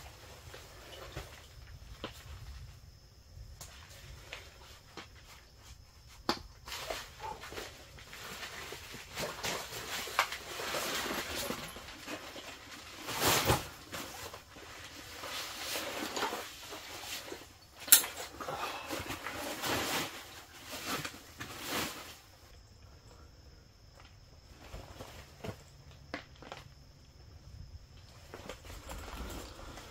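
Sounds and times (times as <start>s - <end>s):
clothing and gear rustling: 3.8s - 22.5s, 28.0s - 29.9s.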